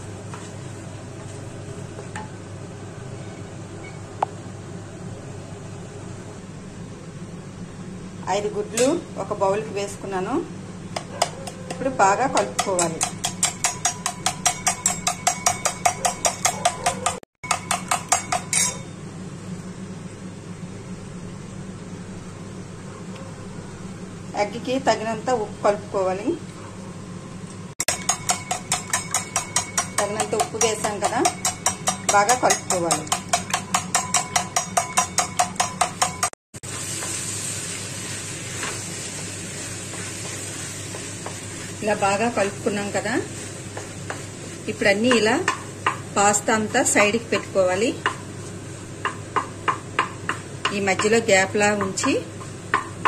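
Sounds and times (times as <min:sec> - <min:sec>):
spoon clinking against steel bowl: 0:12.4 - 0:18.9, 0:27.9 - 0:36.3
pasta sizzling in pan: 0:36.6 - 0:50.6.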